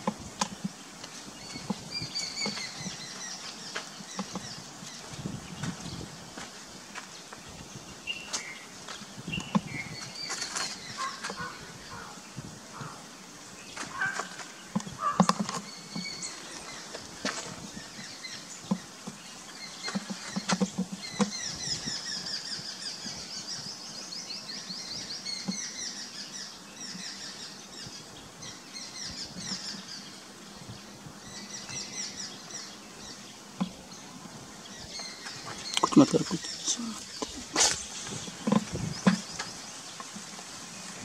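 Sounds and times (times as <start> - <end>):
small birds chirping: 0.0 - 41.0
sharp clicks and knocks: 37.2 - 40.3.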